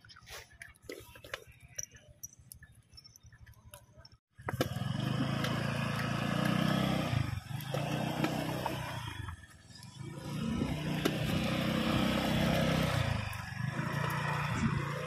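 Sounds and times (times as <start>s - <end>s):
vehicle passing close by: 10.0s - 15.0s.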